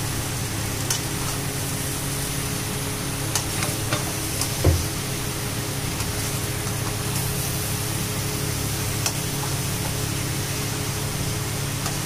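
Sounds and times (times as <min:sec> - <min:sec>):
frying hiss: 0:00.0 - 0:12.0.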